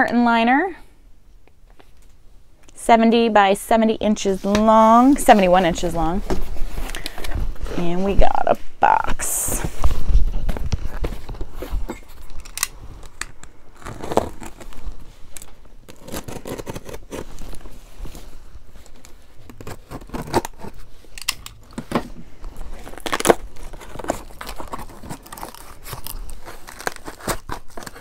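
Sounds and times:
cardboard packaging rustling: 0:09.0 - 0:28.0.

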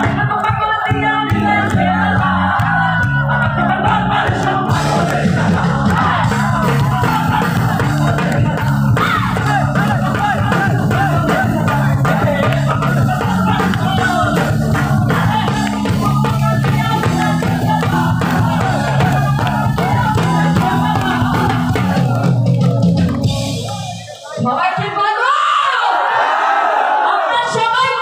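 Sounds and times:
woman singing into a microphone: 0:00.0 - 0:03.2
electric guitar: 0:00.0 - 0:24.0
drums: 0:00.0 - 0:25.2.

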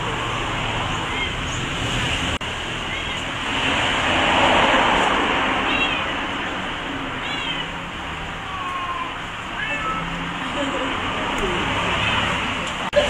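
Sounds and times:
steady background noise: 0:00.0 - 0:13.0
small animal high-pitched cries: 0:07.2 - 0:07.8.

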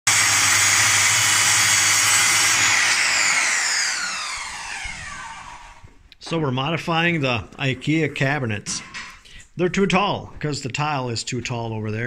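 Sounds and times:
circular saw cutting board: 0:00.1 - 0:05.9.

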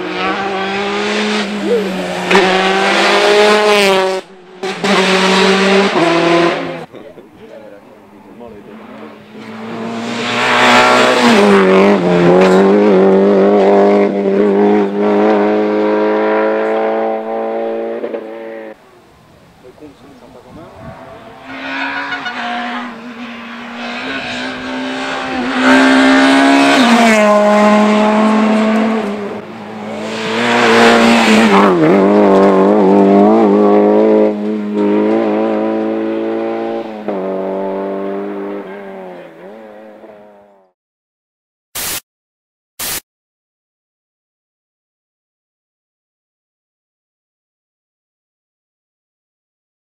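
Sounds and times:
rally car engines passing: 0:00.0 - 0:40.7
short hiss-like blasts: 0:41.8 - 0:42.0, 0:42.8 - 0:43.0.

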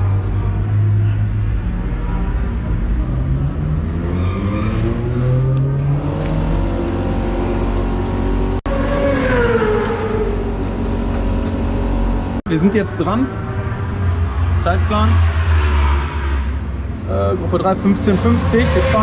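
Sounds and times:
motorcycle engine accelerating: 0:00.0 - 0:17.0.

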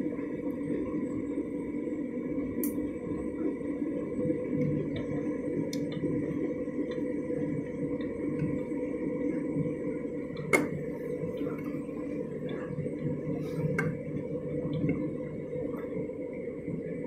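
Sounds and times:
washing machine motor hum: 0:00.0 - 0:17.0.

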